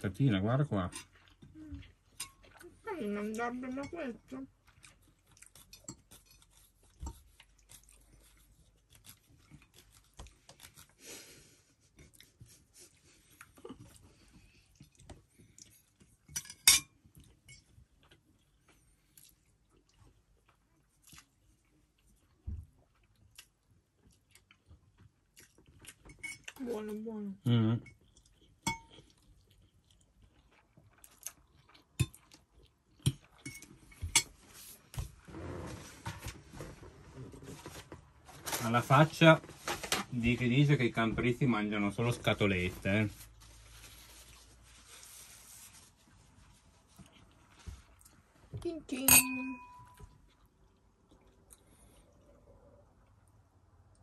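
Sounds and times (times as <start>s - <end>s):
cutlery clinking on plates: 16.3s - 17.7s, 49.1s - 50.0s.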